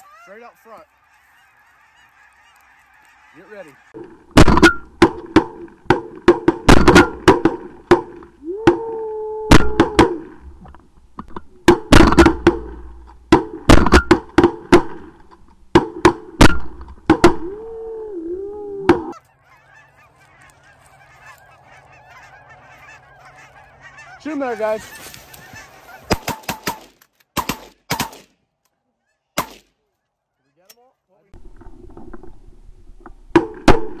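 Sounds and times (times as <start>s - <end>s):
geese honking: 0.0s - 4.1s, 18.9s - 26.4s
shotgun shots: 4.4s - 8.2s, 11.7s - 15.1s, 26.1s - 28.3s, 29.4s - 29.7s.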